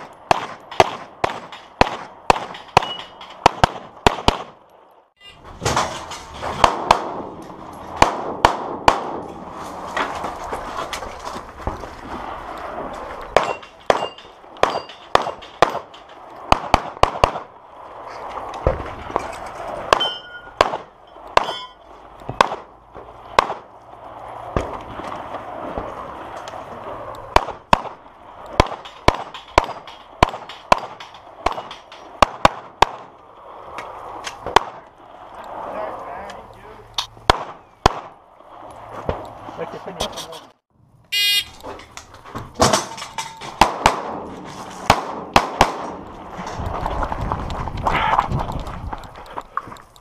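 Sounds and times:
steel targets ringing: 2.5 - 3.4, 13.4 - 16.0, 20.0 - 21.9.

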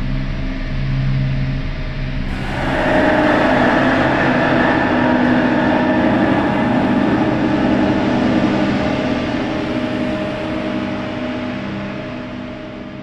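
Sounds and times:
steady ringing tones: 2.3 - 11.4
metallic scraping drone: 2.3 - 12.9.

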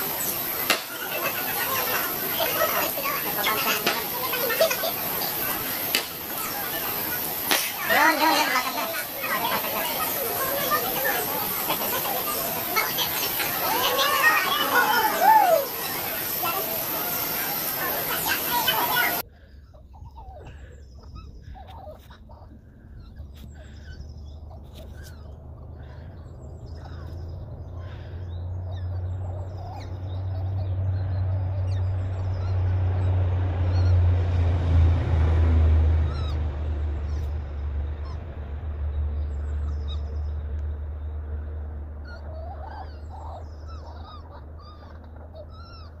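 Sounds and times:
low rumble: 22.3 - 42.0.

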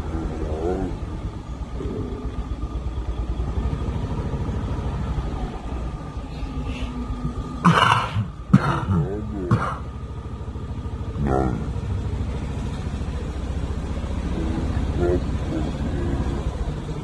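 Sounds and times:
vehicle engine rumbling: 0.0 - 17.0
person coughing harshly: 7.6 - 9.8.

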